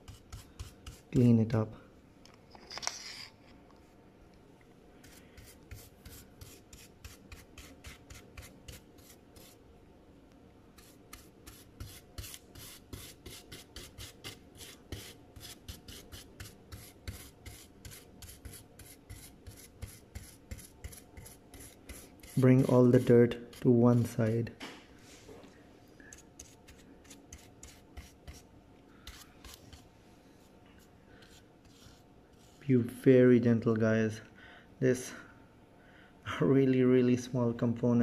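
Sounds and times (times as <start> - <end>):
brush bristles scratching circuit board: 5.0 - 9.6, 10.8 - 24.2, 26.1 - 28.4, 31.2 - 32.8.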